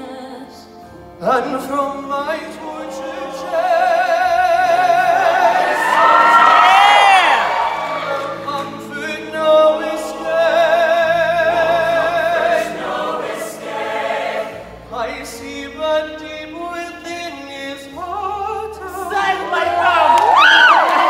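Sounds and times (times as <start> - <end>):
low accompaniment: 0.9 - 21.0
choir singing: 1.2 - 15.5, 18.8 - 21.0.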